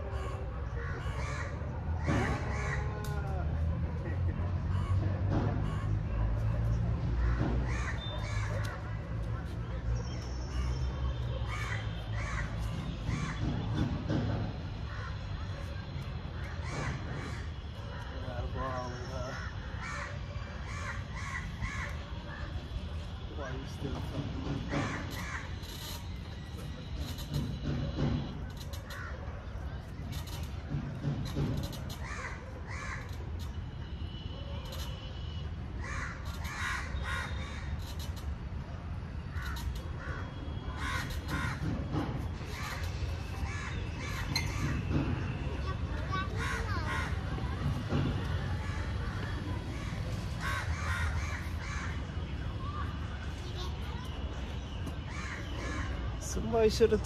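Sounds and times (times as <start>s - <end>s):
crow cawing: 0.8s - 2.9s, 19.3s - 22.0s, 32.0s - 33.2s, 35.8s - 37.8s, 39.4s - 41.6s, 46.1s - 47.2s, 49.7s - 52.0s, 55.1s - 55.9s.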